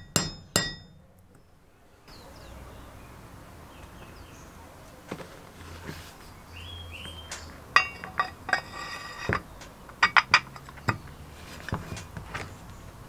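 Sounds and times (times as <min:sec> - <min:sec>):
metallic vise clinks: 0:07.3 - 0:11.0.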